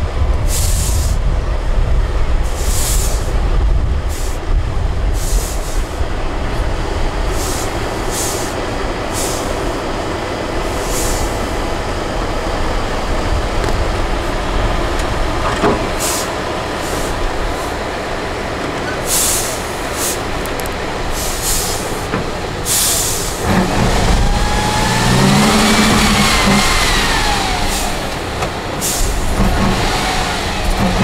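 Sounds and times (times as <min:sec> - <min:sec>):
truck diesel engine rumbling: 0:00.0 - 0:31.0
short sharp air hisses: 0:02.5 - 0:03.3, 0:05.2 - 0:05.8, 0:07.4 - 0:08.6, 0:09.2 - 0:09.5, 0:10.8 - 0:11.3, 0:16.0 - 0:17.7, 0:19.1 - 0:20.2, 0:21.2 - 0:21.9, 0:22.7 - 0:23.4.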